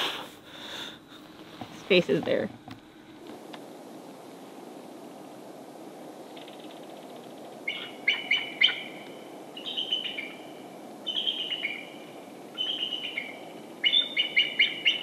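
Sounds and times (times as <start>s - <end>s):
faint steady hiss: 0.0s - 15.0s
songbird chirping: 5.2s - 15.0s.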